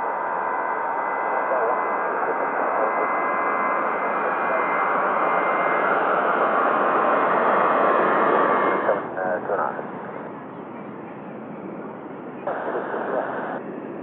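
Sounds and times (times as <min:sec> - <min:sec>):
faint steady tones: 0:00.0 - 0:14.0
radio static hiss: 0:01.3 - 0:03.2, 0:06.8 - 0:10.3, 0:11.8 - 0:13.6.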